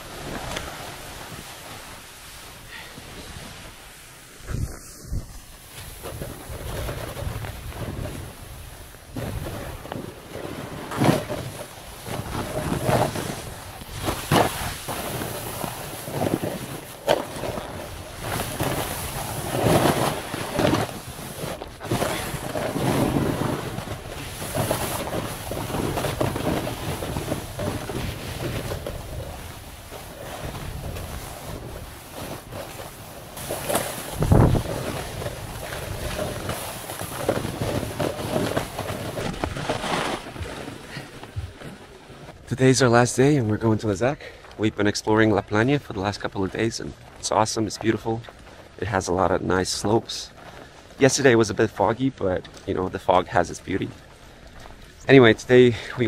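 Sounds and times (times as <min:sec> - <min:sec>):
skis scraping on snow: 0:00.0 - 0:56.0
wind buffeting microphone: 0:04.4 - 0:10.3, 0:34.0 - 0:42.6.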